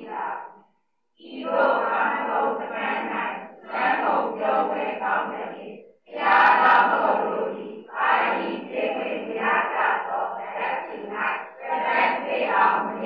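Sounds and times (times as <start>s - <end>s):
group chanting in unison: 0.0s - 0.6s, 1.2s - 13.0s.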